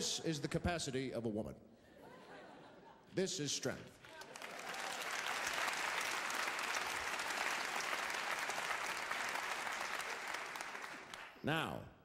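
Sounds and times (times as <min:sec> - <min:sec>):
large audience applauding: 0:04.0 - 0:11.4.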